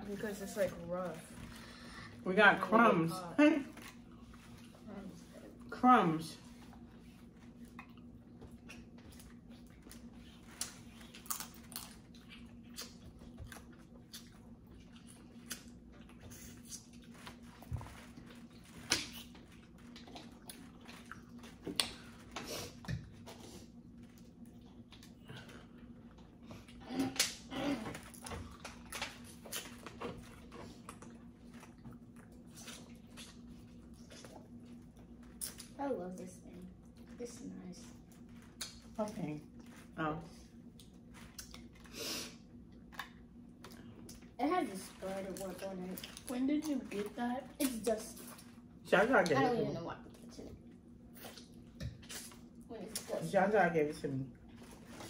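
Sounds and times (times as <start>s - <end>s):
steady low hum: 0.0s - 55.0s
eating sounds: 6.5s - 35.8s, 50.1s - 53.1s
chewing: 6.6s - 35.8s, 40.6s - 41.9s, 50.1s - 53.2s.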